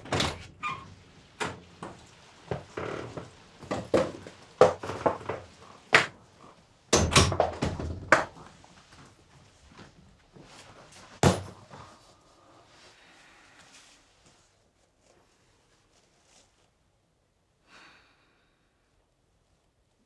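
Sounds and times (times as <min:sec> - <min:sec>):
sliding glass door: 0:00.0 - 0:06.0
knocks and thuds: 0:06.9 - 0:08.4, 0:11.2 - 0:11.6.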